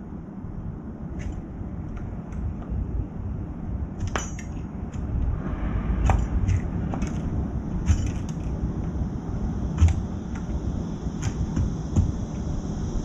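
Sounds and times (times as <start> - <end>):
low background rumble: 0.0 - 13.0.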